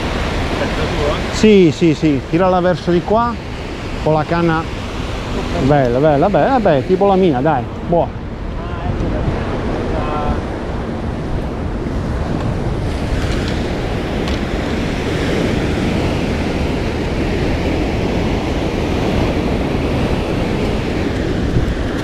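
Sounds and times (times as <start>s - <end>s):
waves breaking on rocks: 0.0s - 22.0s
wind on microphone: 0.0s - 22.0s.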